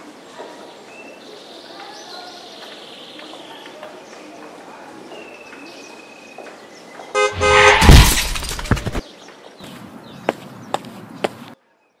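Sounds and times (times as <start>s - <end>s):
car horn honking: 7.2s - 8.3s
car crash: 7.2s - 9.0s
sharp footsteps: 7.3s - 9.0s
debris clattering: 7.4s - 9.0s
glass breaking: 7.4s - 9.0s.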